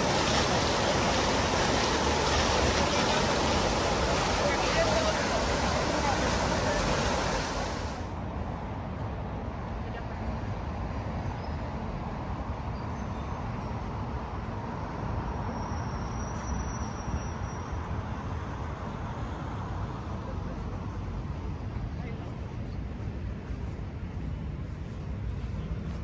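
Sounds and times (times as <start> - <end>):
fountain jets splashing: 0.0 - 8.1
distant road traffic hum: 0.0 - 26.0.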